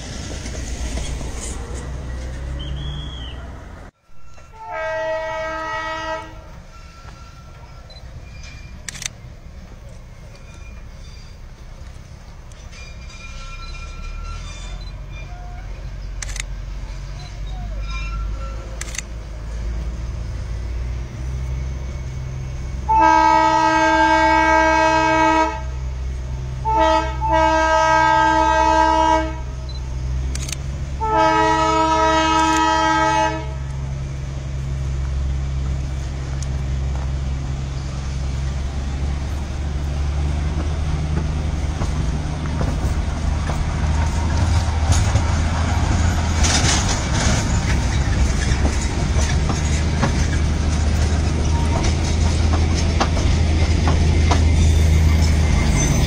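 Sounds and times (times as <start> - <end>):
train wheels clattering: 0.0 - 2.6, 6.6 - 16.2, 35.0 - 56.0
train horn blasts: 4.1 - 7.9, 22.8 - 25.8, 26.6 - 29.7, 31.0 - 33.7
low engine rumble: 14.6 - 56.0.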